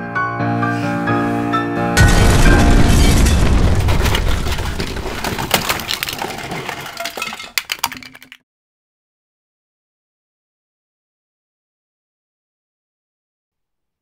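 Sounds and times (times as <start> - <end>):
explosion rumble: 2.0 - 5.5
debris crackles and clicks: 2.0 - 8.4.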